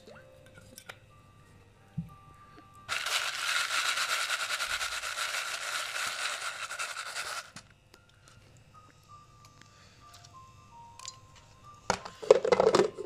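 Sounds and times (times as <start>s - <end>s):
popcorn kernels rattling in plastic bowl: 2.9s - 7.6s.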